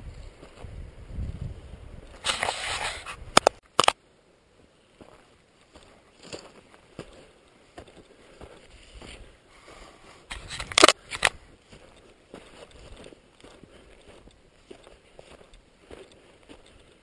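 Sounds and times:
footsteps crunching through dry grass: 0:00.0 - 0:03.5, 0:04.6 - 0:17.0
twigs crackling and scraping: 0:02.1 - 0:04.0, 0:05.0 - 0:09.3, 0:10.2 - 0:17.0.

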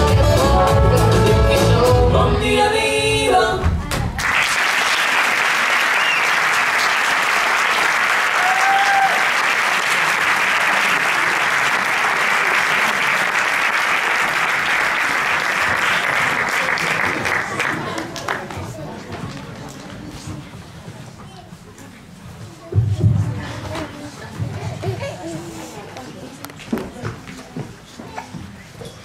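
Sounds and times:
person singing a song: 0:00.0 - 0:03.9
audience applauding: 0:04.2 - 0:18.5.

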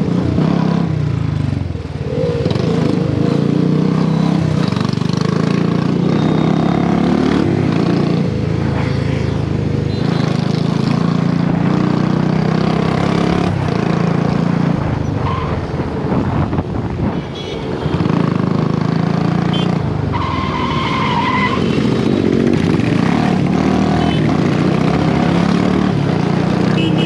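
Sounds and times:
wind rush: 0:14.7 - 0:18.5.

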